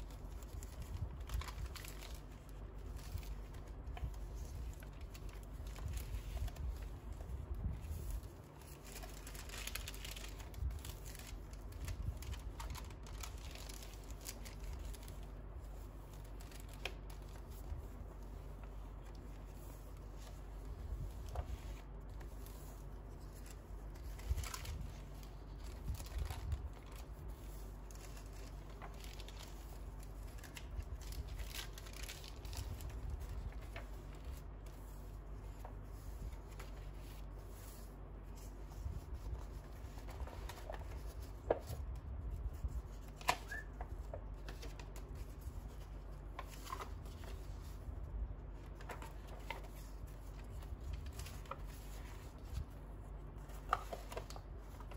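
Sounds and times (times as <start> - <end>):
paper pages rustling: 0.0 - 54.9
page flicks: 43.0 - 45.5.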